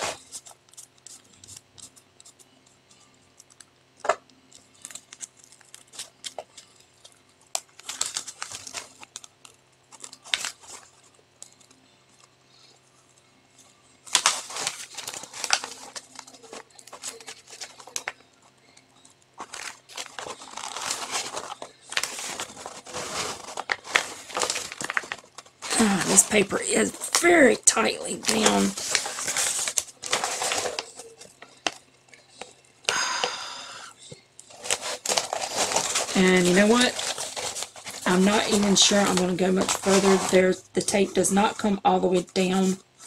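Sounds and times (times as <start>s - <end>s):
paper sheet peeling and crinkling: 14.0s - 18.2s, 19.4s - 32.5s, 34.4s - 43.0s.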